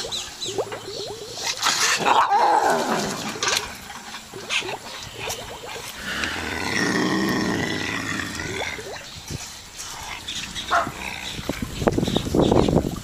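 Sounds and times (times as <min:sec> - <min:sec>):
animal growling: 0:01.9 - 0:03.8, 0:06.0 - 0:09.0, 0:09.9 - 0:11.8.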